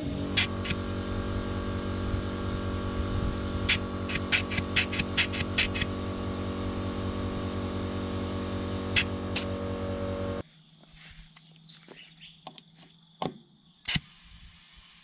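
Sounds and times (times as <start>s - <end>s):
air compressor running: 0.0s - 10.4s.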